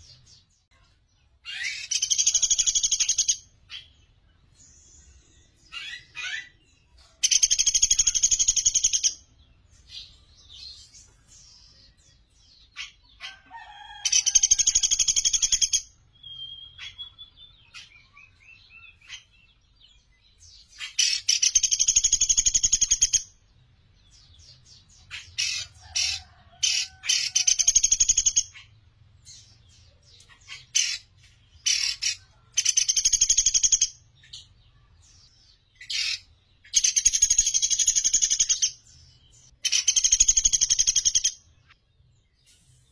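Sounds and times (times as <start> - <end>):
bird chips and squeaks: 1.5 - 3.8.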